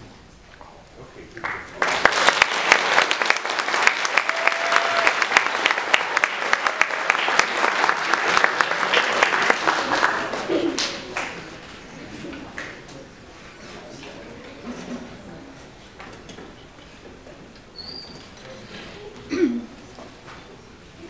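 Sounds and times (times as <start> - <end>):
audience applauding: 1.4 - 11.6.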